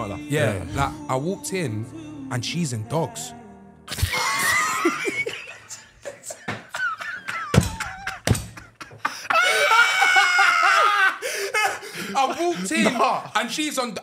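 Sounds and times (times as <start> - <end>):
men laughing hard: 3.9 - 13.4.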